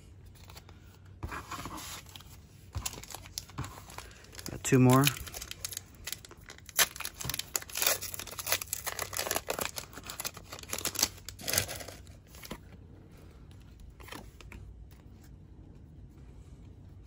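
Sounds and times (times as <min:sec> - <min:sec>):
foil wrapper tearing and crinkling: 0:02.8 - 0:12.3.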